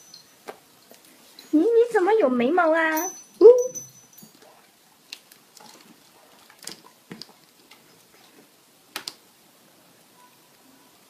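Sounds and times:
dog claws clicking on tile floor: 0:04.2 - 0:08.3.

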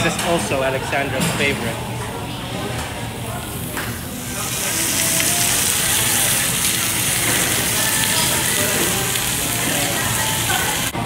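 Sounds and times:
meat sizzling on a grill: 0:03.3 - 0:11.0.

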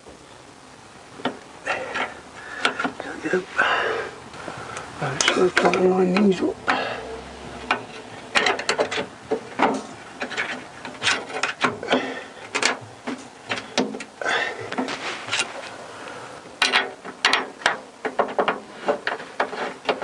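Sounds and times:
metal clicks and knocks of tools: 0:07.7 - 0:11.8, 0:16.6 - 0:20.0.

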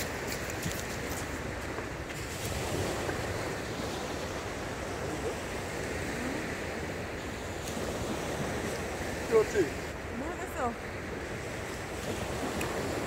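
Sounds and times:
surf washing onto beach: 0:00.0 - 0:13.0
wind on microphone: 0:00.0 - 0:13.0.

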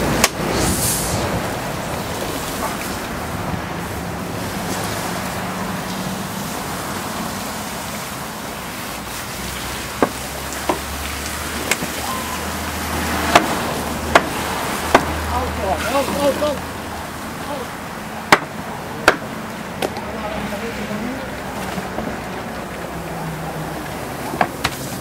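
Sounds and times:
water splashing and hissing on hot iron: 0:00.0 - 0:25.0
water poured from bucket: 0:00.4 - 0:17.3, 0:19.6 - 0:25.0
sharp knocks: 0:13.3 - 0:15.2, 0:18.3 - 0:20.0.

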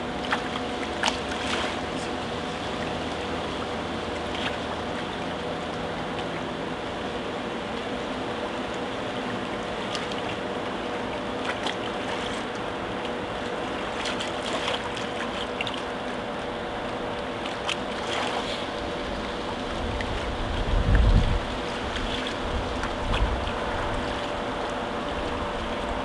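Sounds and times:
faint steady hum: 0:00.0 - 0:26.0
seawater lapping against concrete: 0:00.0 - 0:26.0
small splashes and drips: 0:11.4 - 0:26.0.

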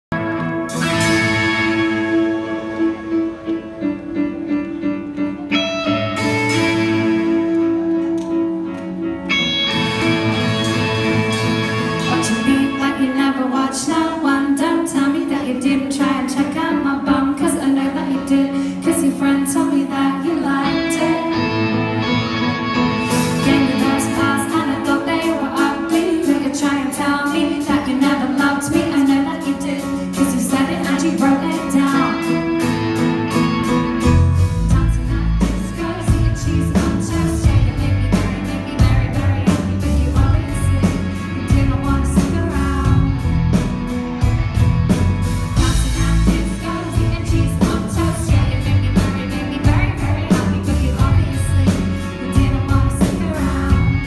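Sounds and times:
electric guitar: 0:00.1 - 0:54.0
keyboard: 0:00.1 - 0:54.0
woman singing: 0:12.0 - 0:22.2, 0:23.2 - 0:32.6, 0:34.4 - 0:43.6, 0:45.6 - 0:54.0
drums on a steady beat: 0:34.0 - 0:54.0.

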